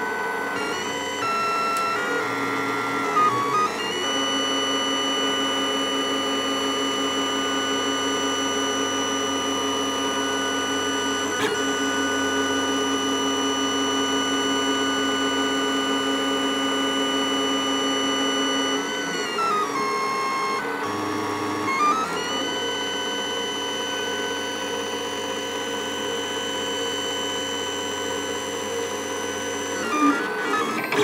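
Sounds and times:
three d printer whining: 0:00.0 - 0:31.0.

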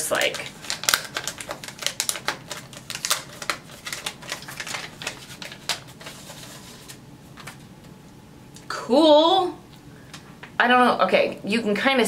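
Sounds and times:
plastic film crackling: 0:00.0 - 0:07.6.

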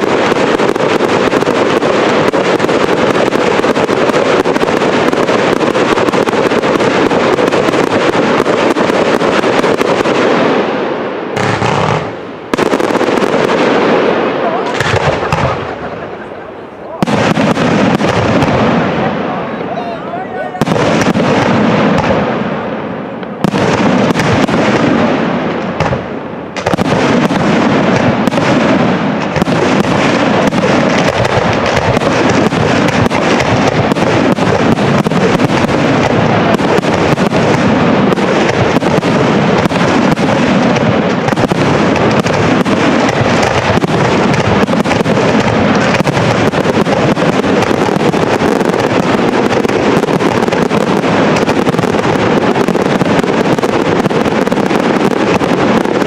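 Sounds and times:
firework shells bursting: 0:00.0 - 0:10.7, 0:11.3 - 0:19.0, 0:23.2 - 0:56.0.

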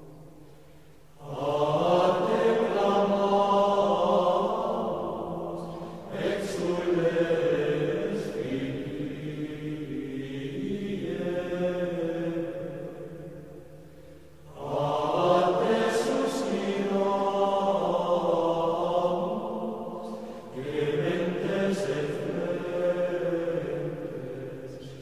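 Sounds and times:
voices singing plainchant: 0:01.2 - 0:13.4, 0:14.5 - 0:25.0.

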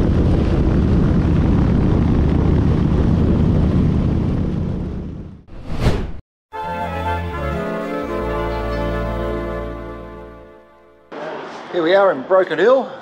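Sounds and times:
wind noise: 0:00.0 - 0:05.4
short whoosh: 0:05.5 - 0:06.2.

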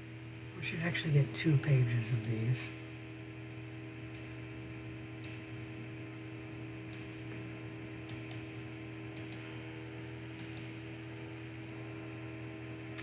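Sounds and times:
steady electrical hum: 0:00.0 - 0:13.0
computer mouse clicking: 0:09.1 - 0:09.4, 0:10.4 - 0:10.7.

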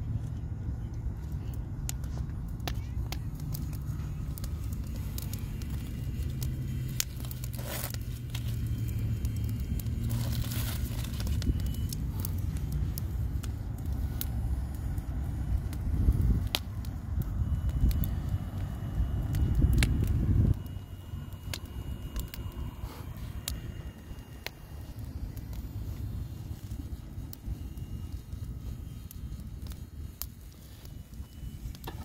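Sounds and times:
low rumble: 0:00.0 - 0:32.0
wood fire crackling: 0:00.0 - 0:32.0
hissing rustles: 0:01.3 - 0:16.4.

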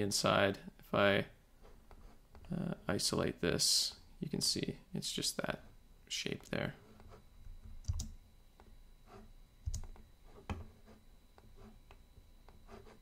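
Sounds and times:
computer mouse clicking: 0:07.8 - 0:08.2, 0:09.6 - 0:10.0.

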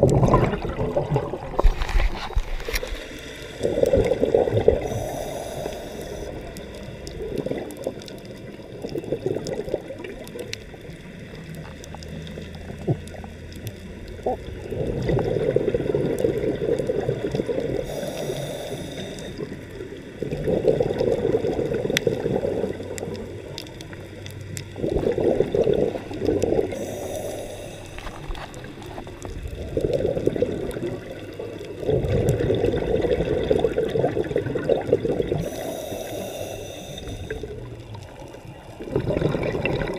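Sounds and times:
bubbles gurgling underwater: 0:00.0 - 0:02.8, 0:03.6 - 0:05.3, 0:06.3 - 0:18.3, 0:19.4 - 0:27.2, 0:27.9 - 0:35.8, 0:37.2 - 0:39.9
regulator inhale hiss: 0:02.7 - 0:04.0, 0:04.8 - 0:06.5, 0:17.8 - 0:19.6, 0:26.7 - 0:28.8, 0:35.3 - 0:37.7.

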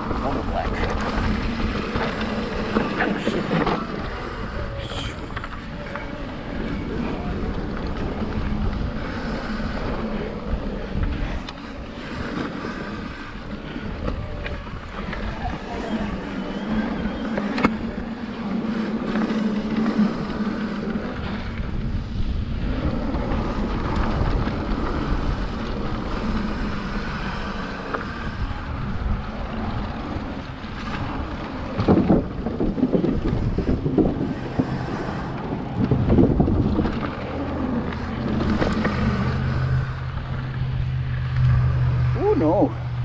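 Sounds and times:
wind rushing over microphone: 0:00.0 - 0:43.0
bike knocks and rattles: 0:30.8 - 0:39.2.

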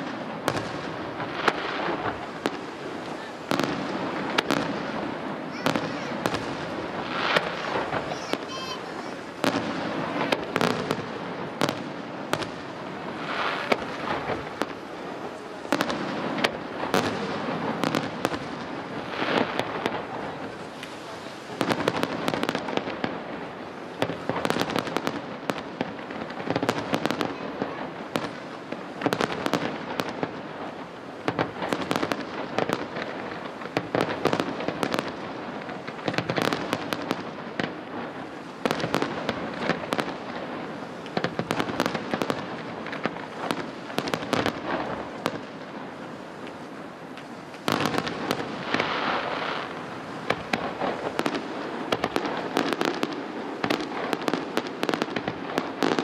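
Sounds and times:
fireworks bursting with sharp bangs: 0:00.0 - 0:56.0
fireworks crackling: 0:00.0 - 0:56.0.

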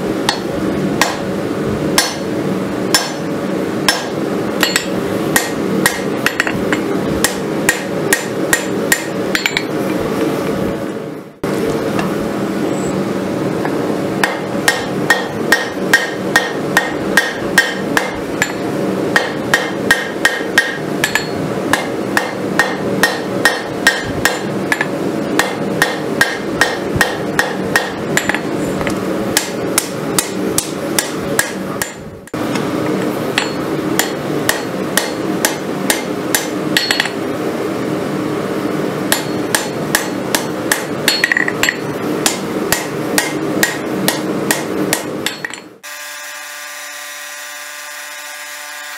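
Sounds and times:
steady background drone: 0:00.0 - 0:48.6
hammer striking hot steel on anvil: 0:00.2 - 0:01.4, 0:02.0 - 0:02.3, 0:02.9 - 0:09.8, 0:13.6 - 0:32.4, 0:33.3 - 0:37.2, 0:39.1 - 0:45.8.

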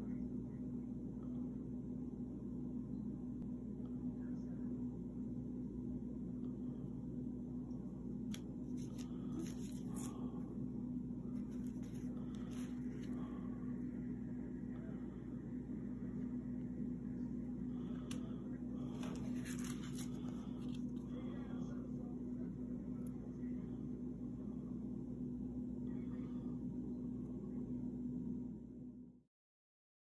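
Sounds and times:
low constant hum: 0:00.0 - 0:29.2
card stock rustling and clicking: 0:08.3 - 0:10.2, 0:18.9 - 0:21.0.

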